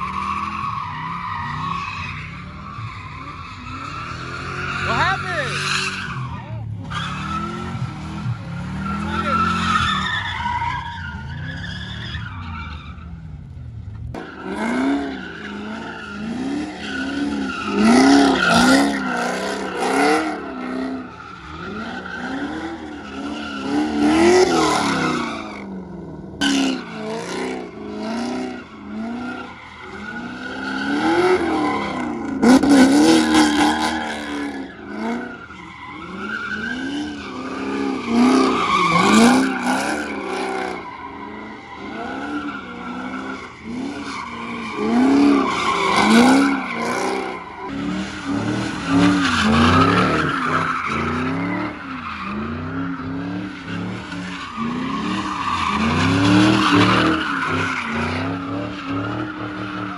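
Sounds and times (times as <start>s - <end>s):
tyres squealing: 0.0s - 7.7s
car engine revving: 1.6s - 59.9s.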